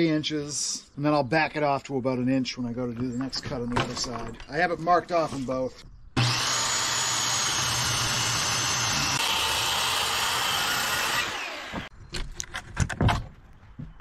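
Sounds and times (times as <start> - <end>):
circular saw cutting wood: 6.2 - 11.9.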